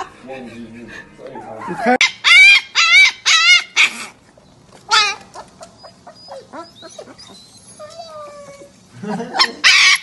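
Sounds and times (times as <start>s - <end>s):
husky puppy yowling: 1.8s - 4.1s, 4.9s - 8.8s, 9.4s - 10.0s
puppy yips and whines: 2.0s - 4.1s, 4.9s - 8.8s.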